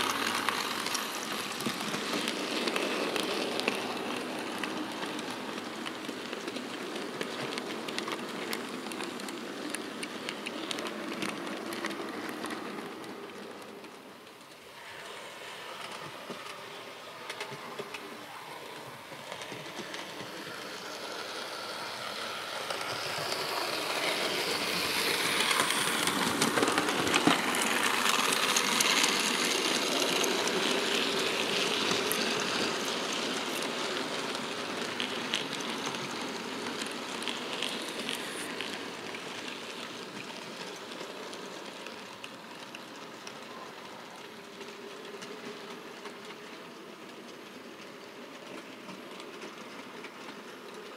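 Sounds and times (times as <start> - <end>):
model train rumbling past: 0.0 - 50.9
wheels clicking on track: 0.0 - 50.9.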